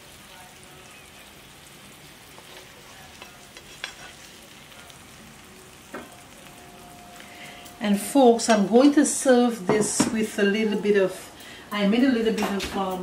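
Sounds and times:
oil sizzling in a frying pan: 0.0 - 13.0
metal tongs clicking on pan: 3.5 - 4.1.

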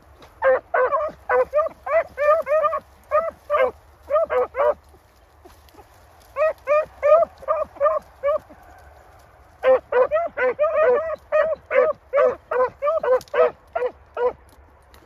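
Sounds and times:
dog yelping barks: 0.4 - 4.9, 6.4 - 8.6, 9.6 - 14.4.

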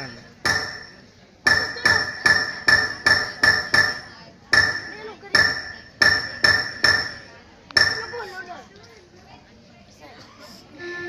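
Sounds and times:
metal object ringing when struck: 0.4 - 8.2.

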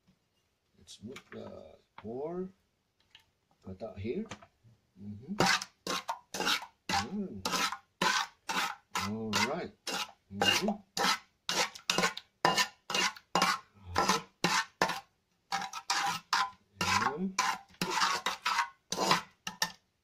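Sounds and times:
spatula scraping pot bottom: 5.3 - 19.8.

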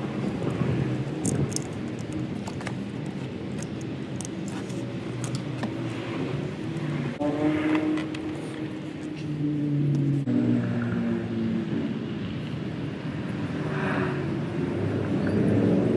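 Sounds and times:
vehicle engines droning: 0.0 - 15.9
ratchet wrench clicks: 1.1 - 5.7
pitched engine tone: 7.2 - 12.4.

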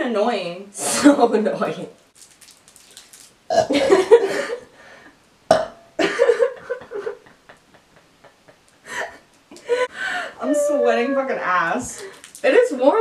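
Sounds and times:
woman burping loudly: 3.5 - 4.1, 5.5 - 5.9.

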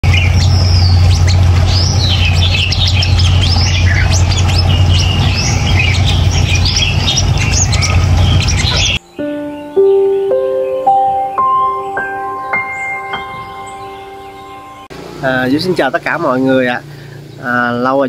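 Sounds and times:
steady low hum: 0.0 - 9.0
sunbirds chirping: 0.0 - 18.0.

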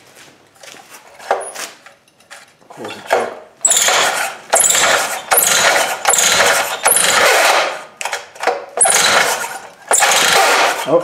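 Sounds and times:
recoil starter pulls cranking engine: 3.0 - 11.0.

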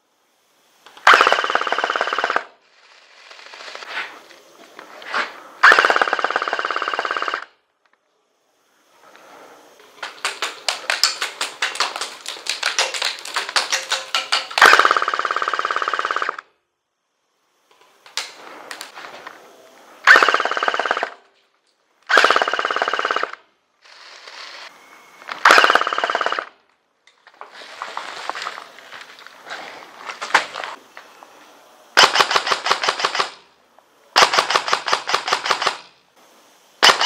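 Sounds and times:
airsoft guns firing bursts: 1.0 - 2.5, 5.6 - 7.4, 10.0 - 16.4, 20.0 - 21.2, 22.1 - 23.4, 25.4 - 26.5, 32.0 - 33.4, 34.2 - 35.9, 36.8 - 37.0.

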